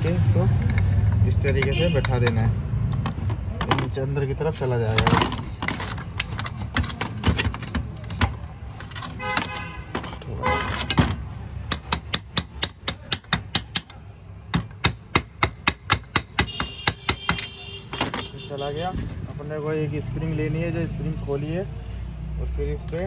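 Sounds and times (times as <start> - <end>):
metal tapping on metal: 10.8 - 18.2.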